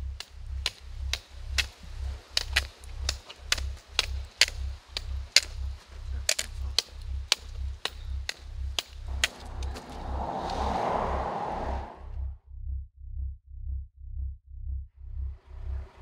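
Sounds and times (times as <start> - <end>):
sharp clicking percussion: 0.0 - 10.6
low pulsing beat: 0.0 - 11.2, 12.0 - 16.0
swell of noise: 9.1 - 12.3.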